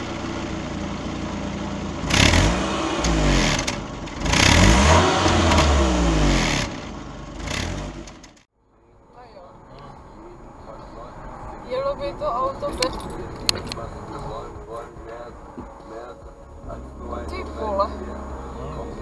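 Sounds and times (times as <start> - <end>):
car engine idling and revving: 0.0 - 19.0.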